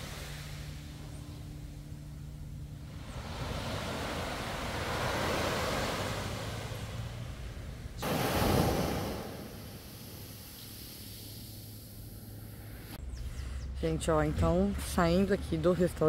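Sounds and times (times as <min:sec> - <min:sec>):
close rush of water: 0:00.0 - 0:00.8, 0:08.0 - 0:12.1
small waves breaking on beach: 0:00.0 - 0:01.3, 0:02.8 - 0:12.8.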